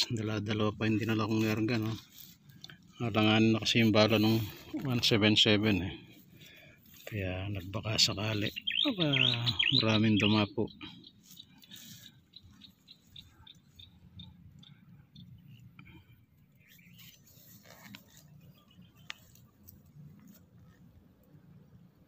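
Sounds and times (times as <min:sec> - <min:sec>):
rustling in dry grass: 0:00.0 - 0:10.4, 0:11.0 - 0:14.3, 0:15.4 - 0:21.2.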